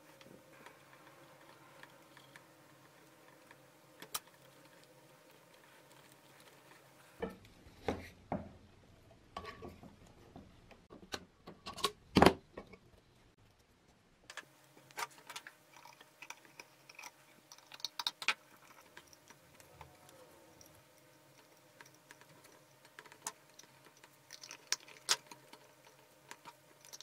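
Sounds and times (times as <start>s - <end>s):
faint steady hum: 0.0s - 27.0s.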